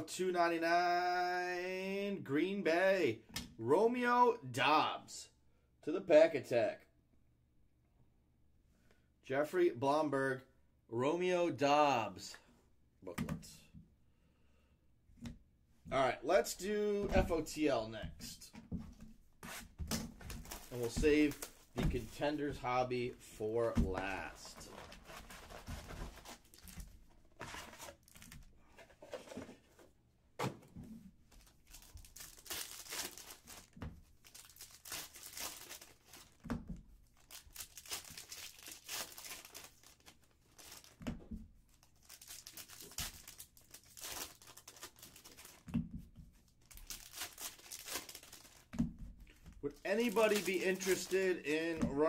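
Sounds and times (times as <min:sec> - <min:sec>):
foil packs tearing and crinkling: 0:31.7 - 0:36.4, 0:37.2 - 0:41.0, 0:42.0 - 0:45.7, 0:46.7 - 0:48.7, 0:49.9 - 0:51.6.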